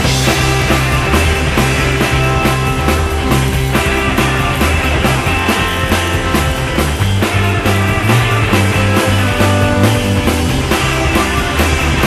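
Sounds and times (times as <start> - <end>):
rock music: 0.0 - 12.0.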